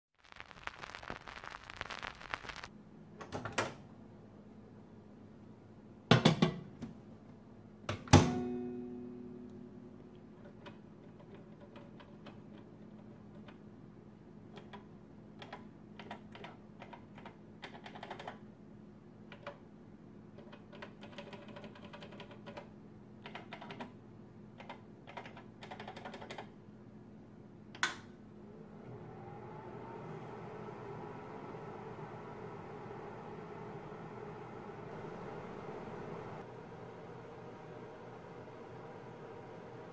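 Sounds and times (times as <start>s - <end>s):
microwave oven humming: 6.1s - 11.8s, 27.1s - 39.9s
microwave door shutting: 7.9s - 8.6s.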